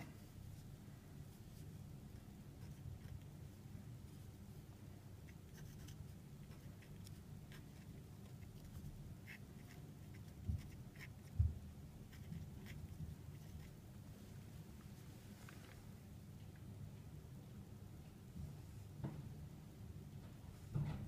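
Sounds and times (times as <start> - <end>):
marker scratching on whiteboard: 5.2 - 11.5, 12.1 - 13.8.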